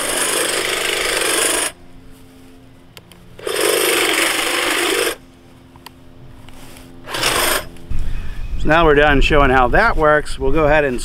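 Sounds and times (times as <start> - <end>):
hedge trimmer running: 0.0 - 8.1.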